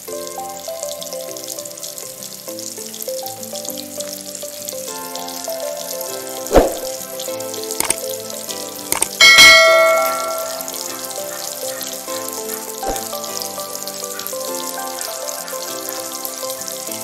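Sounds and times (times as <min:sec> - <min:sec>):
background music: 0:00.0 - 0:17.0
fish deep-frying in oil: 0:00.0 - 0:17.0
sharp clicks: 0:07.8 - 0:08.1, 0:08.9 - 0:09.2
bell ding sound effect: 0:09.0 - 0:10.8.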